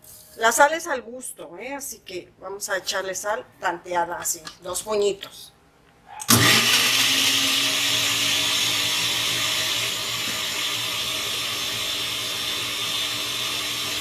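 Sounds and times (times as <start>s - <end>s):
blender running: 6.3s - 14.0s.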